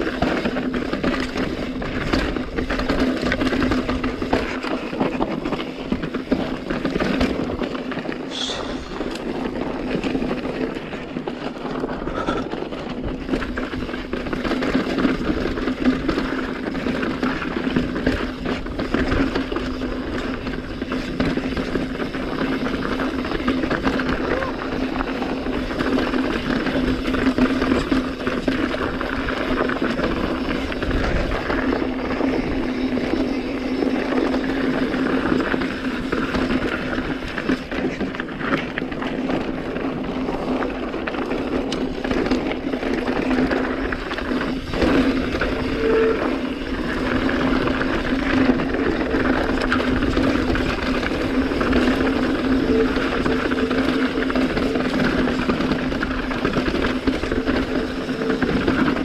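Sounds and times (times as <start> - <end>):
bike rattling: 0.0 - 59.0
bike tyres on rocky trail: 0.0 - 59.0.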